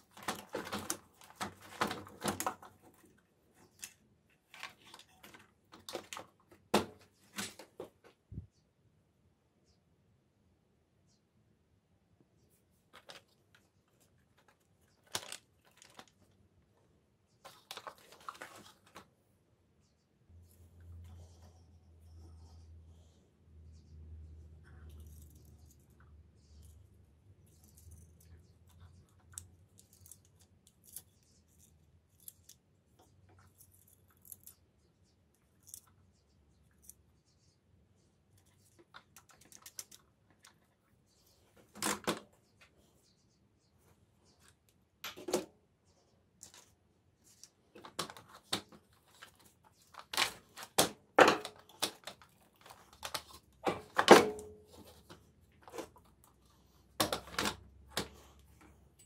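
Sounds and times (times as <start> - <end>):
plastic parts knocking and rattling: 0.0 - 8.2, 14.3 - 16.4, 47.7 - 56.1, 56.9 - 58.7.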